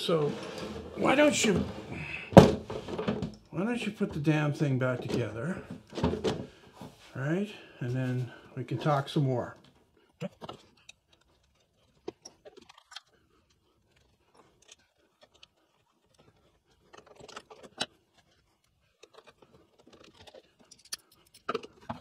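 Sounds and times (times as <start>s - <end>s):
screwdriver and parts clicking: 19.9s - 21.8s.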